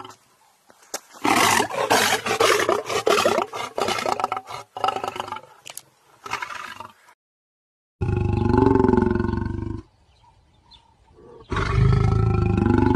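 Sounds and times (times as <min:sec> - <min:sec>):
lion roaring: 0:11.1 - 0:12.9.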